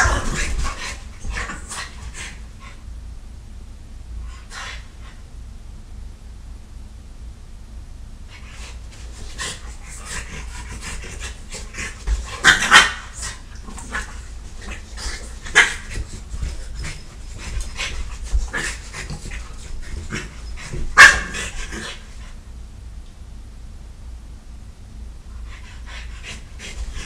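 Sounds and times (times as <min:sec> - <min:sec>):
dogs scuffling: 0:00.0 - 0:02.4, 0:08.4 - 0:22.3
dogs panting: 0:08.4 - 0:22.4, 0:25.4 - 0:27.0.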